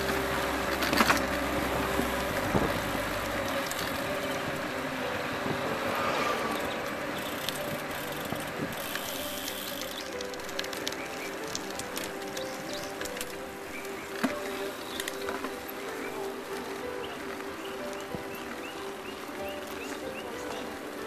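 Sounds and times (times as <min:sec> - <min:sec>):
wind and tyre noise: 0:00.0 - 0:21.0.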